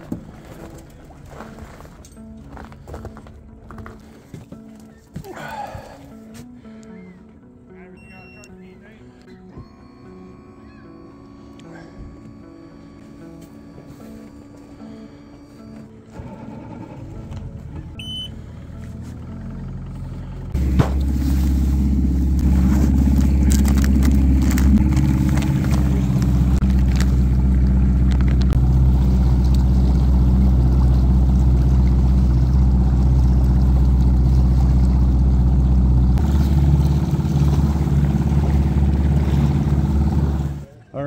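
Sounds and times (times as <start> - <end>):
outboard motor running: 8.0 - 40.8
motor clunk: 9.5 - 32.8
water rushing: 20.6 - 40.7.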